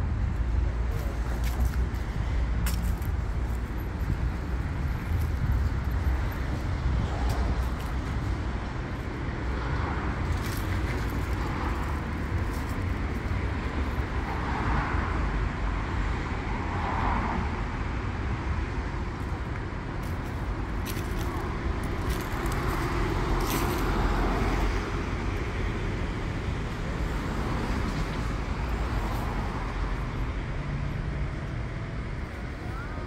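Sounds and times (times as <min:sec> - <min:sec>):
city road traffic rumble: 0:00.0 - 0:33.0.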